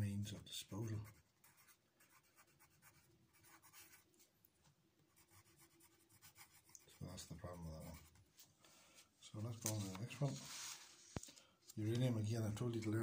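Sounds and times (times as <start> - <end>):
pencil scratching on paper: 0.2 - 4.0, 5.1 - 8.2.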